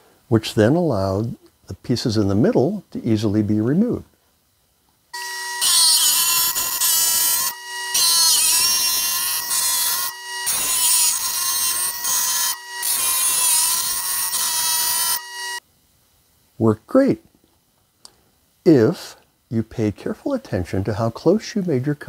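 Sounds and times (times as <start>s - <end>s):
saw blade grinding glass: 5.2s - 15.6s
saw motor whining: 5.2s - 15.6s.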